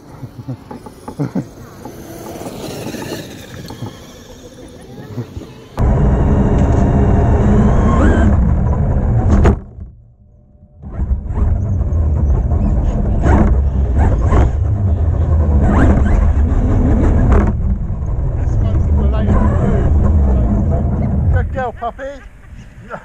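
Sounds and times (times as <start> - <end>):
rc truck tyres and drivetrain rumble: 0.0 - 22.8
electric motor whine: 0.3 - 9.7.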